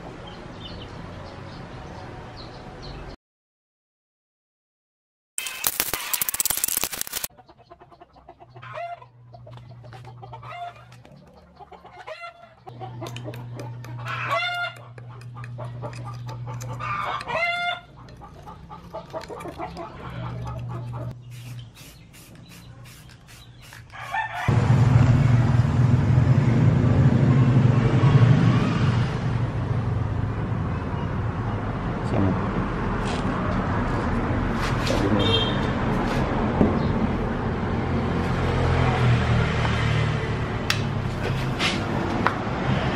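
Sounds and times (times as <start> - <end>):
chickens clucking and crowing: 7.3 - 21.2, 22.6 - 24.6
low hum: 24.5 - 30.6
loud steady rumbling: 24.5 - 32.6.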